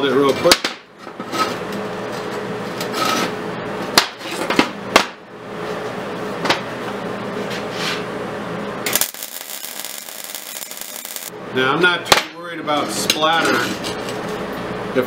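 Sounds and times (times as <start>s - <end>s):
steady low hum: 5.2s - 11.6s.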